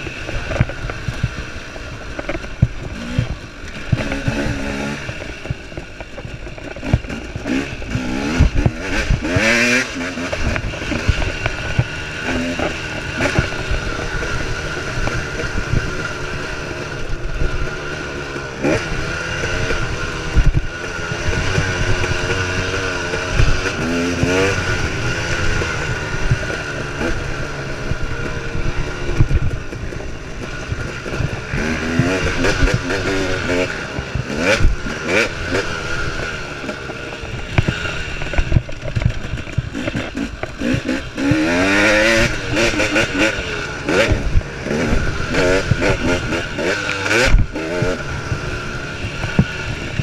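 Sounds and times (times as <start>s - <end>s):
two-stroke motorcycle engine revving: 0.0s - 50.0s.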